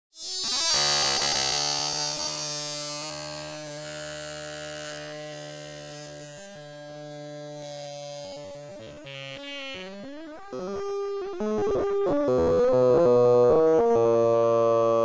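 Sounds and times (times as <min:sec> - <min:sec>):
buzzy held note: 0:07.6 - 0:15.0.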